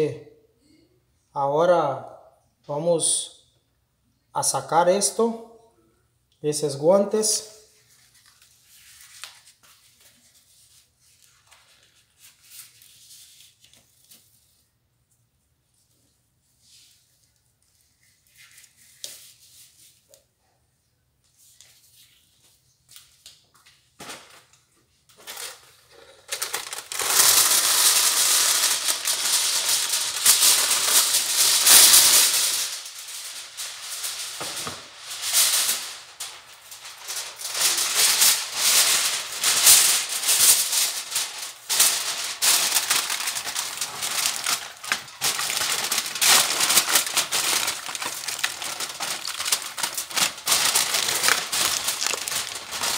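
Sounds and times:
aluminium foil crinkling: 24.0 - 52.9.

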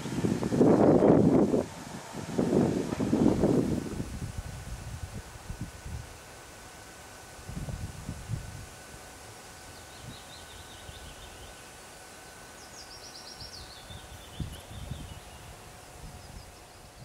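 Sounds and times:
wind buffeting microphone: 0.0 - 6.2, 7.4 - 8.9, 13.8 - 17.0
songbird trilling: 12.5 - 15.5.

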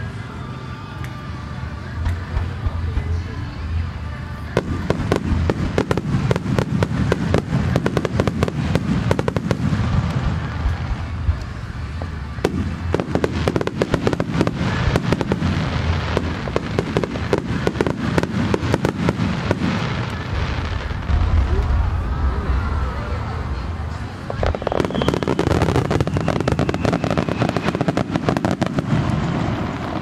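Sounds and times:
fireworks bangs and crackles: 0.0 - 30.0
low rumble: 20.0 - 25.5.

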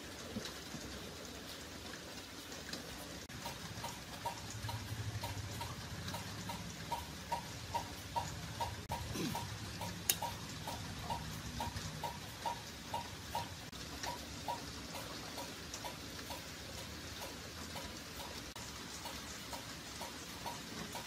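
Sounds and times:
steady clock ticking: 3.2 - 21.0.

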